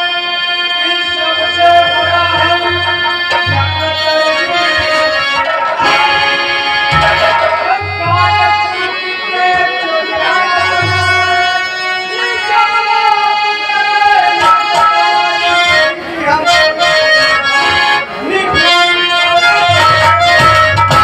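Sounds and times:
harmonium chords: 0.0 - 21.0
man singing loudly: 0.0 - 21.0
low drum strokes: 5.9 - 8.8.

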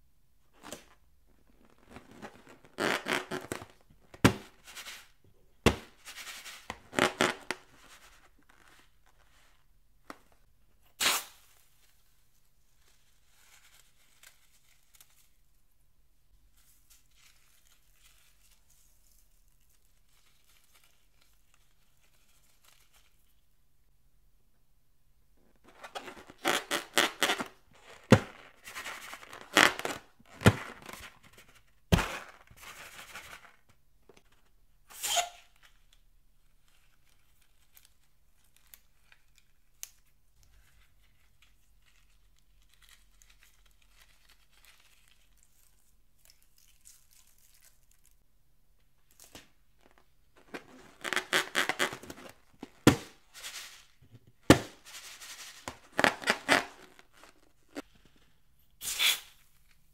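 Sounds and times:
rubber balloons squeaking and crinkling: 1.4 - 4.7, 5.6 - 9.0, 11.0 - 11.4, 25.6 - 32.7, 34.8 - 35.6, 49.8 - 59.4
balloon snaps: 11.0 - 11.5, 58.8 - 59.4.

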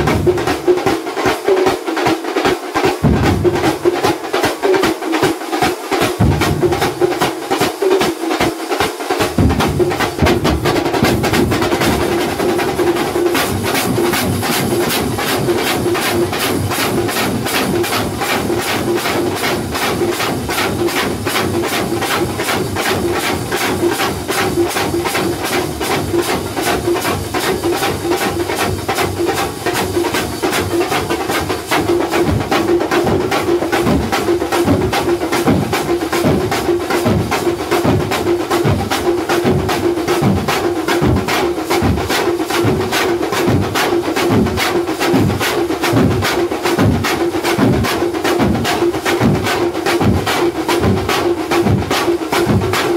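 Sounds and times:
frame drums beaten with sticks: 0.0 - 52.9
side drums: 0.0 - 52.9.

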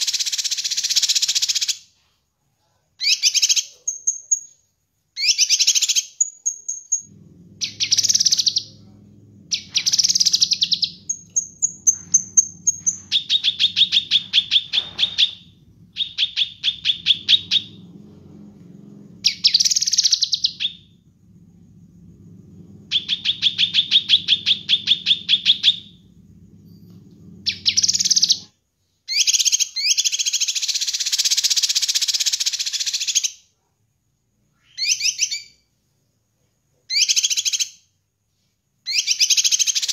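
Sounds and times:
low steady hum: 7.0 - 28.5
bird singing whistles and trills: 9.5 - 17.7, 22.9 - 25.9.

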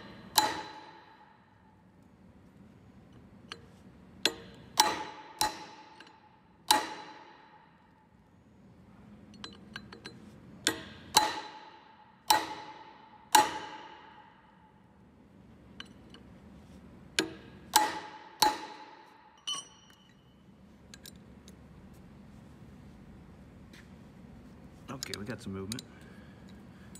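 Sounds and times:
wrench striking metal pulley: 0.0 - 1.4, 3.5 - 7.6, 9.3 - 13.9, 17.2 - 20.3
light metal clinks: 9.3 - 10.8, 19.4 - 21.3.

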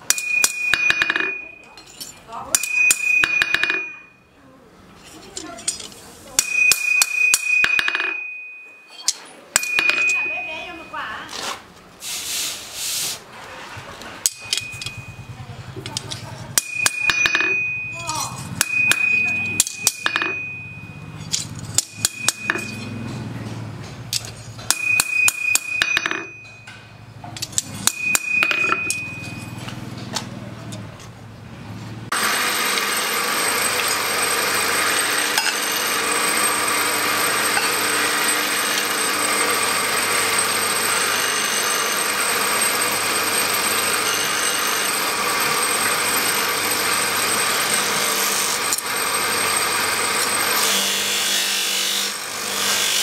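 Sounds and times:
hammer tapping steel blade: 0.0 - 4.1, 5.0 - 10.9, 14.2 - 15.2, 15.8 - 31.1
grinding wheel whining: 13.4 - 53.0.

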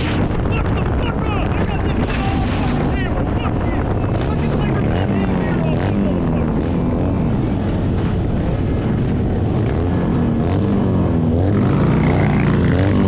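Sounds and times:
motorcycle engine running: 0.0 - 13.0
wind rush on microphone: 0.0 - 13.0.

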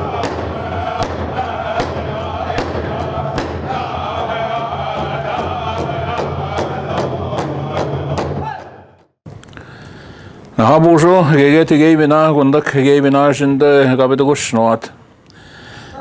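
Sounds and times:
steady drum beat: 0.0 - 9.0
voices chanting: 0.0 - 9.1.

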